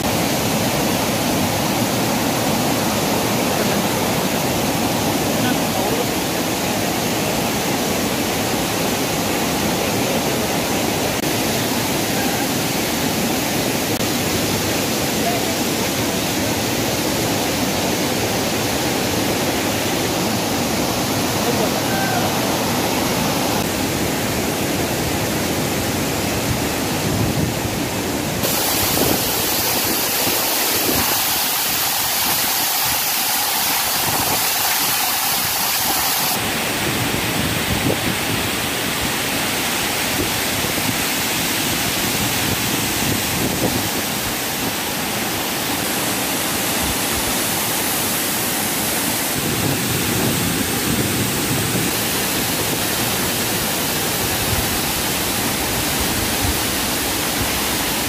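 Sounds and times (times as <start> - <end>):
waterfall pouring onto rocks: 28.4 - 58.0.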